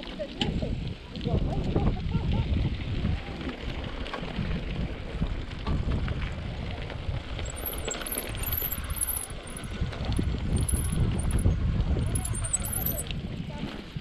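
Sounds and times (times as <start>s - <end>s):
bike tyres rumbling on dirt: 0.5s - 14.0s
bike rattles and knocks: 3.8s - 13.1s
faint high chirping: 10.6s - 11.4s, 12.0s - 13.0s.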